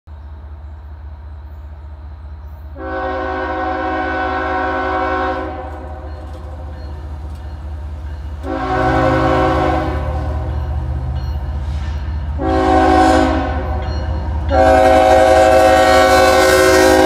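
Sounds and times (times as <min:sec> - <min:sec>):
diesel engines rumbling: 0:00.2 - 0:17.0
locomotive air horn: 0:02.8 - 0:06.1, 0:08.4 - 0:10.5, 0:12.3 - 0:13.8, 0:14.5 - 0:17.0.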